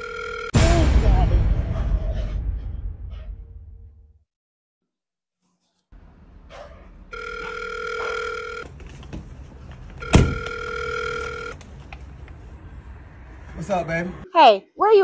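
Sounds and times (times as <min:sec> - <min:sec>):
telephone ringing: 0:00.0 - 0:00.5, 0:07.1 - 0:08.6, 0:10.0 - 0:11.6.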